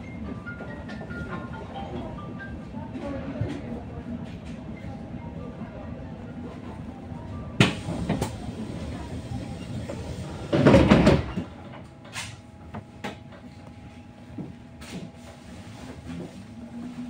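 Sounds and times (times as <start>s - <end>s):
bus doors clattering: 7.6s - 13.4s.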